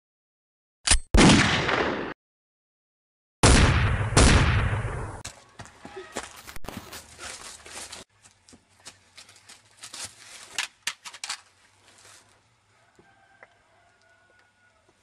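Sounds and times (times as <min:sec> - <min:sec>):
footsteps crunching dry leaves: 0:05.3 - 0:10.8, 0:11.5 - 0:12.4.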